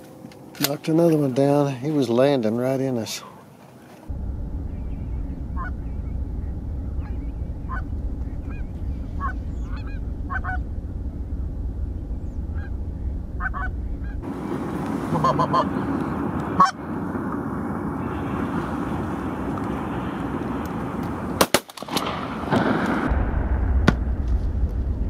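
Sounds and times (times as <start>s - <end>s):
low steady rumble: 4.0s - 25.0s
geese honking: 4.7s - 17.0s
sharp bang: 21.4s - 25.0s.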